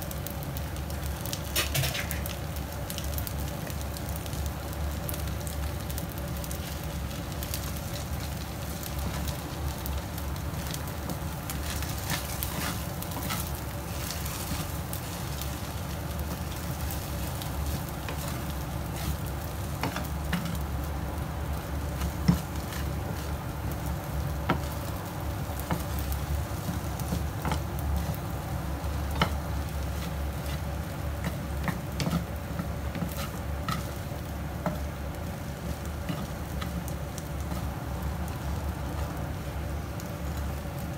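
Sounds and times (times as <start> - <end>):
food sizzling in a pan: 0.0 - 40.9
steady low hum: 2.4 - 40.9
wooden spatula scraping: 10.6 - 20.7, 21.8 - 23.5, 25.6 - 28.4, 29.1 - 37.8.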